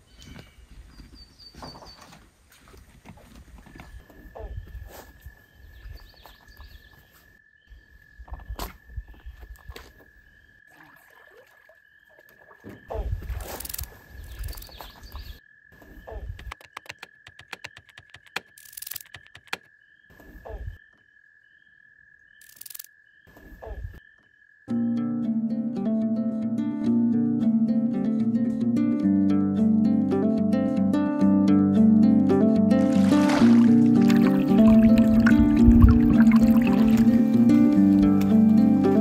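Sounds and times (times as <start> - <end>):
run of clicks: 16.3 - 19.7
wind rumble on microphone: 34.8 - 36.6.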